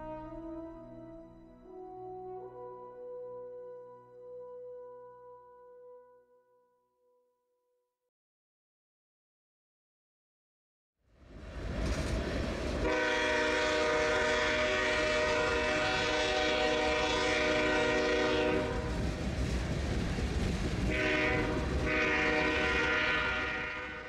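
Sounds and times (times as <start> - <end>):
train rumbling past: 0.0 - 2.8, 11.1 - 24.0
locomotive air horn blasts: 0.0 - 6.4, 12.8 - 19.0, 20.9 - 24.0.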